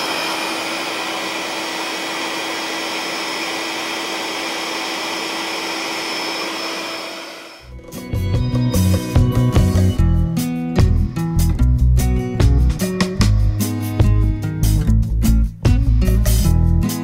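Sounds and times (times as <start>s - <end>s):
electric air pump whirring: 0.0s - 7.7s
guitar music: 7.6s - 17.0s.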